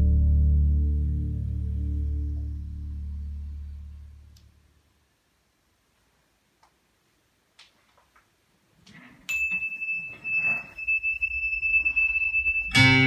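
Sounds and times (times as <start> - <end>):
low rumble: 0.0 - 4.5
high ringing tone: 9.3 - 13.0
loud guitar music: 12.7 - 13.0.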